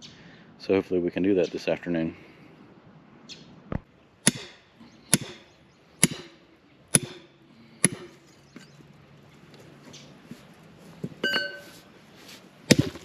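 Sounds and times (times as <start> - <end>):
hammer striking brick: 4.3 - 5.4, 6.0 - 7.2, 7.8 - 8.2, 12.7 - 13.0.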